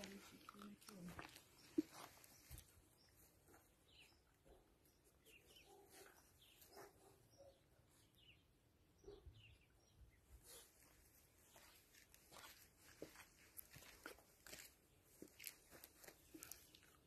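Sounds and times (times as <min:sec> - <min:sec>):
faint bird chirps: 0:01.6 - 0:11.8.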